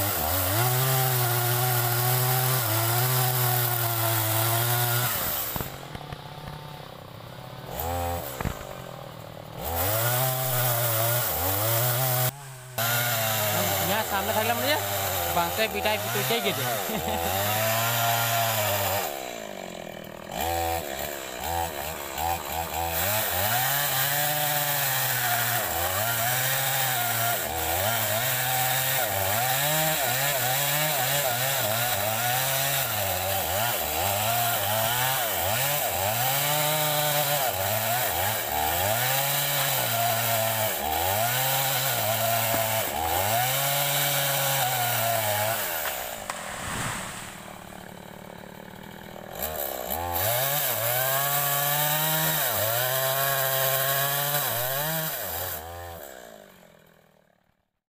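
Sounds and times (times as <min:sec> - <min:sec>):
chainsaw cutting wood: 0:00.0 - 0:57.5.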